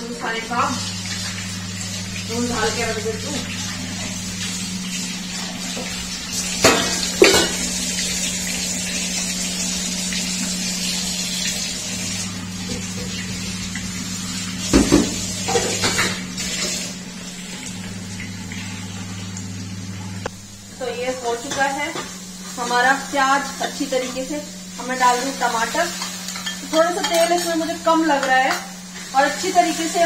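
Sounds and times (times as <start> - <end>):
metal pots and utensils clattering: 6.6 - 7.8, 14.7 - 16.7, 25.9 - 28.7.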